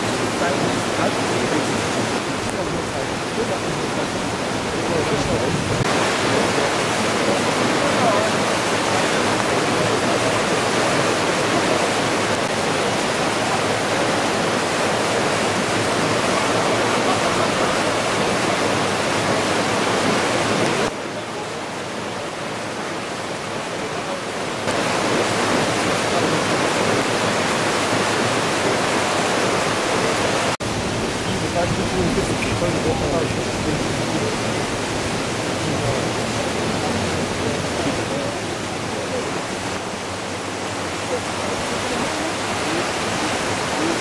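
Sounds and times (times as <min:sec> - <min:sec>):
flood water rushing: 0:00.0 - 0:44.0.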